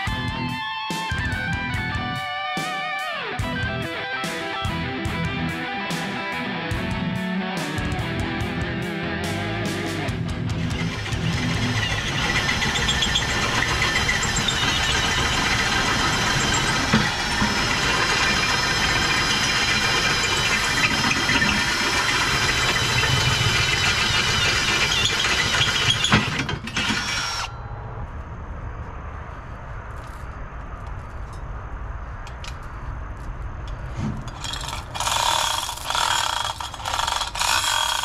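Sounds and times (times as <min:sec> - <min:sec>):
angle grinder grinding steel: 0:10.5 - 0:27.6, 0:34.1 - 0:38.0.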